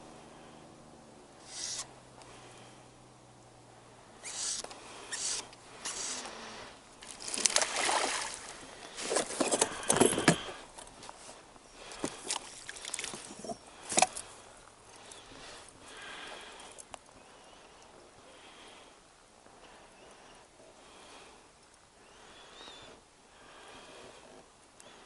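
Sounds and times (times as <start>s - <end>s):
fish splashing in water: 7.0s - 9.3s.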